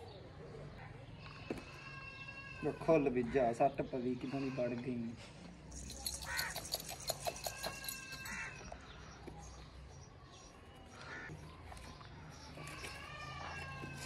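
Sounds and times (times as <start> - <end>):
crow cawing: 6.3 - 6.5.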